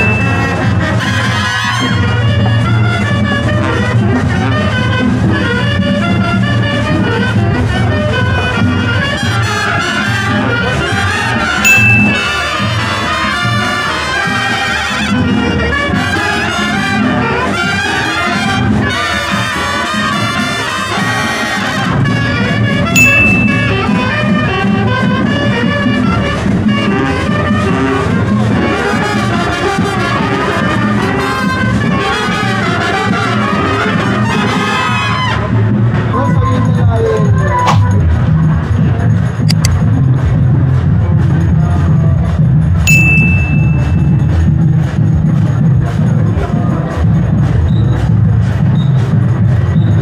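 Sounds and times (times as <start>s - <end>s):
brass marching band playing: 0.0s - 36.1s.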